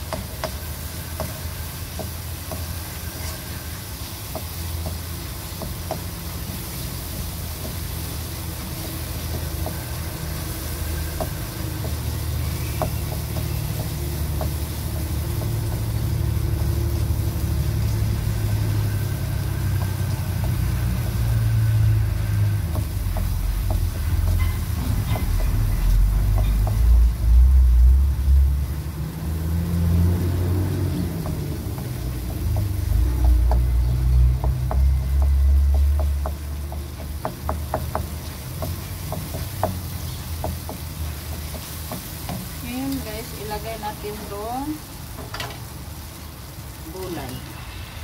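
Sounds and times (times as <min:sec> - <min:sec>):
spoon tapping pan: 0:00.0 - 0:03.3, 0:04.2 - 0:08.0, 0:08.6 - 0:16.0, 0:18.4 - 0:27.0, 0:31.2 - 0:43.6.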